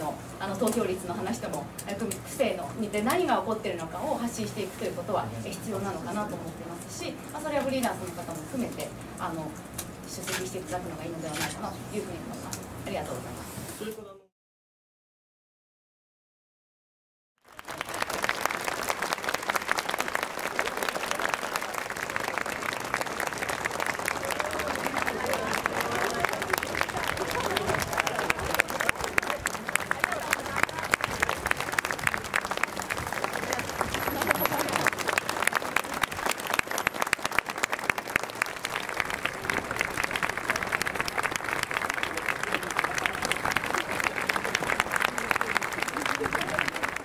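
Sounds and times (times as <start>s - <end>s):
crowd applauding: 17.4s - 47.0s.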